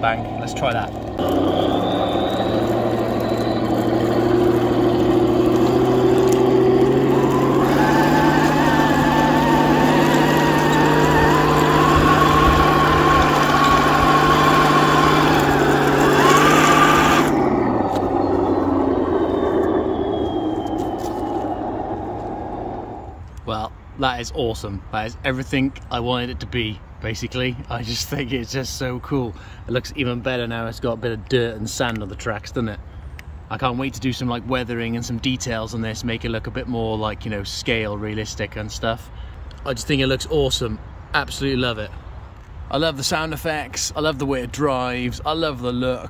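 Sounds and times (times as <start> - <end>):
simulated tank engine sound effect: 0.0 - 23.2
electric motors and gearbox whine: 0.0 - 23.3.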